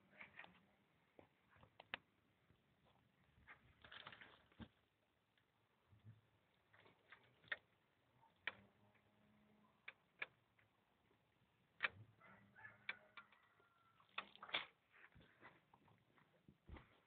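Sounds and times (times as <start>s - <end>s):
sharp clicks and light knocks: 8.3s - 9.0s, 11.8s - 12.0s.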